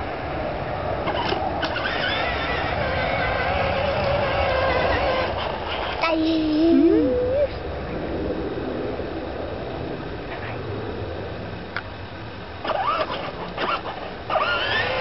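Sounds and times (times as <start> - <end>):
short rising squeaks: 1.1 - 6.1, 12.6 - 15.0
toy motorcycle motor humming: 1.1 - 7.3, 12.6 - 15.0.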